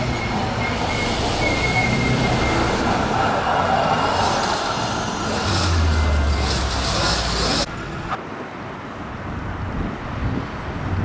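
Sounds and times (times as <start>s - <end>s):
wheels rolling on rails: 0.0s - 7.7s
electric train passing: 0.0s - 8.4s.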